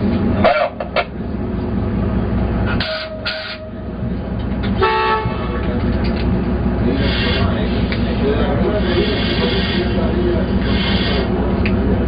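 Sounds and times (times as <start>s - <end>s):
diesel engine running: 0.0s - 12.0s
brief horn toot: 2.8s - 3.8s, 4.8s - 5.4s.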